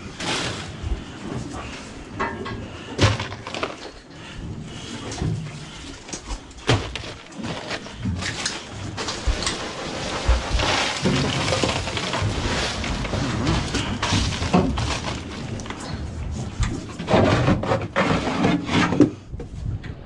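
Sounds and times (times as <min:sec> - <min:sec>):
ice cubes rattling: 0:03.0 - 0:04.0, 0:06.6 - 0:09.6, 0:10.5 - 0:15.8
plastic tubs clattering: 0:03.0 - 0:04.1, 0:06.0 - 0:19.2.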